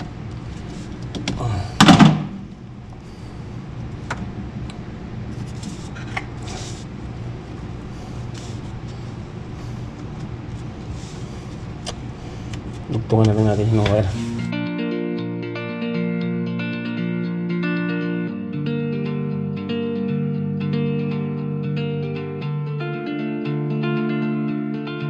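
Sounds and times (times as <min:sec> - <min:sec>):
steady low hum: 0:00.0 - 0:16.4
loud clunk: 0:01.2 - 0:02.5.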